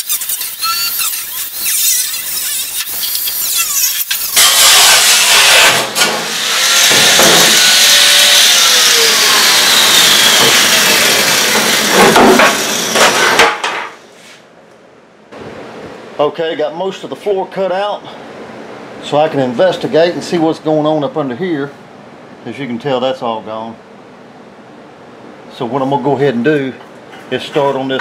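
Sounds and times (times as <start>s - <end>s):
angle grinder cutting metal: 0.0s - 13.4s.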